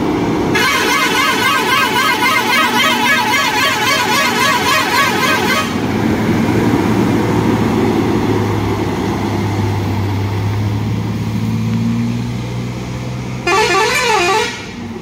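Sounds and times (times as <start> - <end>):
truck diesel engine under load: 0.0 - 15.0
warbling horn: 0.6 - 5.9, 13.4 - 14.8.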